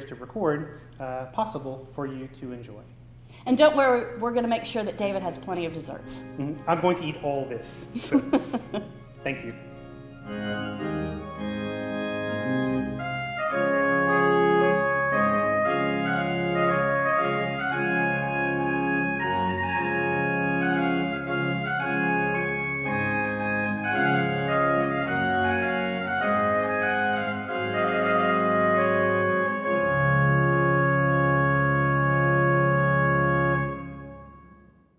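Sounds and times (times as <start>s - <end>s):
church organ chords: 5.3s - 34.9s.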